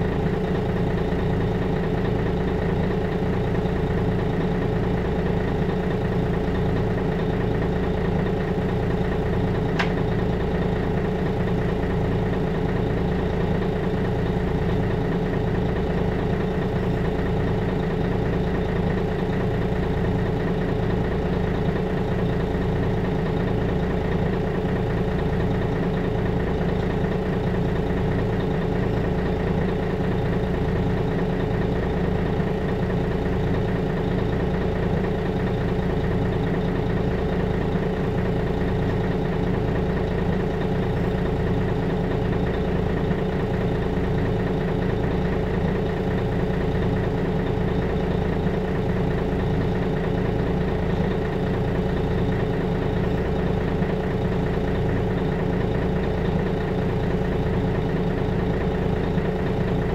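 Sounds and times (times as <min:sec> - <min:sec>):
bus engine running: 0:00.0 - 0:59.9
brief click: 0:09.8 - 0:10.0.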